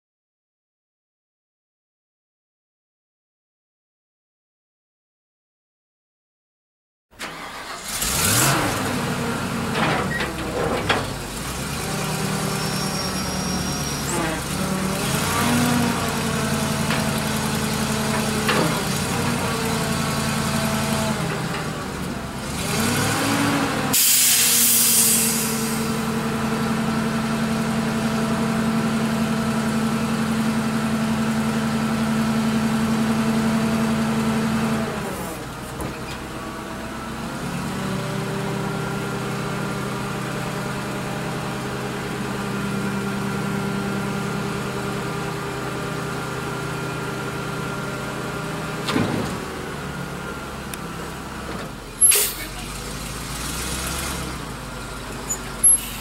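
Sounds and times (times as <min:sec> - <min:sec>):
truck engine revving: 0:07.2 - 0:56.0
loud hiss: 0:24.0 - 0:26.0.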